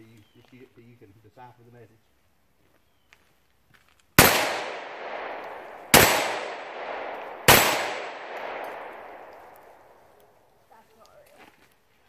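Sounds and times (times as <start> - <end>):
gunshots: 4.2 - 10.0.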